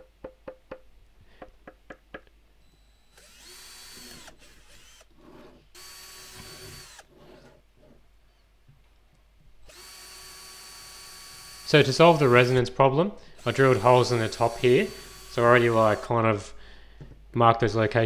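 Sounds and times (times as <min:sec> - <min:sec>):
knuckles knocking on hollow plastic: 0:00.0 - 0:02.3
cordless drill whining: 0:02.6 - 0:07.5, 0:09.6 - 0:12.6, 0:13.4 - 0:16.2.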